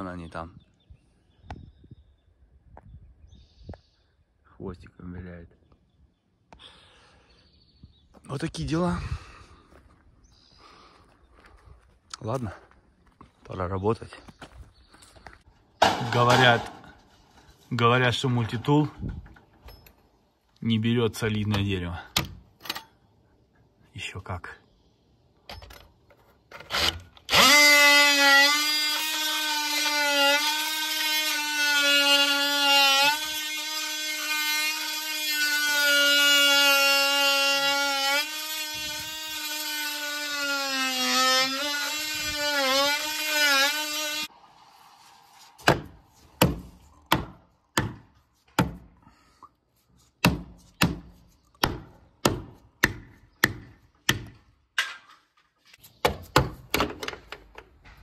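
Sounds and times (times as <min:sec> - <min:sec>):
oscillating multi-tool cutting wood: 0:26.5 - 0:44.4
hammer striking wood: 0:45.6 - 0:48.9, 0:50.2 - 0:55.0, 0:56.0 - 0:57.2.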